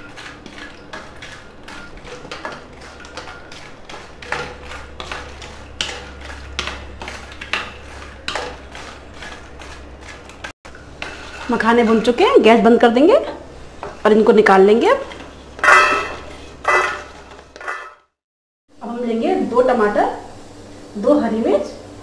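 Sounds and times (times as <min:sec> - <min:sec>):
wooden spatula scraping pan: 0:00.1 - 0:12.2, 0:13.6 - 0:18.0.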